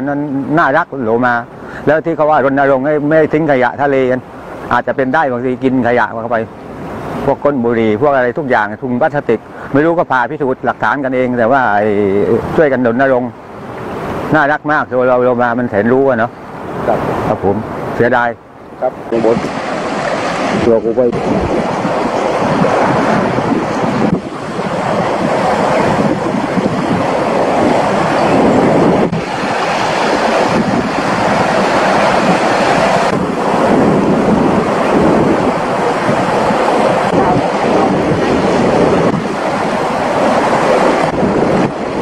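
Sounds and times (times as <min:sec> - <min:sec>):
wind buffeting microphone: 0:00.0 - 0:42.0
waves breaking on boulders: 0:19.1 - 0:42.0.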